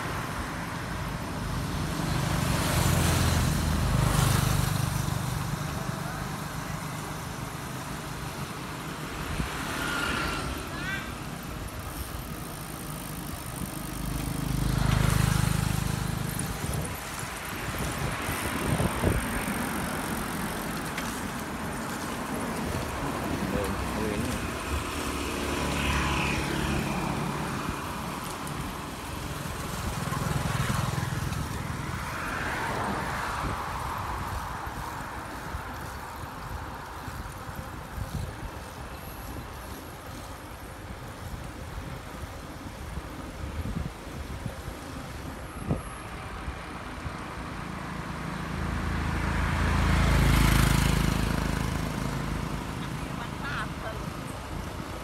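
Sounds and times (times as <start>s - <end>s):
wind and road noise: 0.0s - 55.0s
car passing close: 9.3s - 11.0s, 29.4s - 35.8s, 47.4s - 54.4s
wind rumble on microphone: 15.3s - 25.0s, 30.7s - 47.7s.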